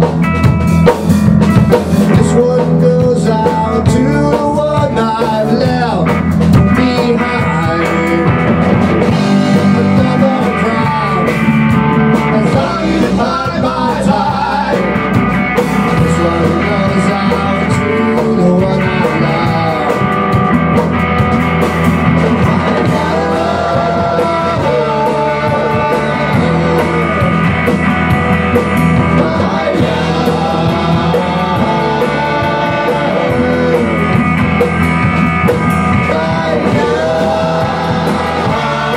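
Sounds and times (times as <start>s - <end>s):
drum kit: 0.0s - 38.9s
electric bass: 0.0s - 38.9s
electric guitar: 0.0s - 38.9s
man singing: 2.0s - 15.2s, 15.8s - 20.5s, 22.2s - 38.9s.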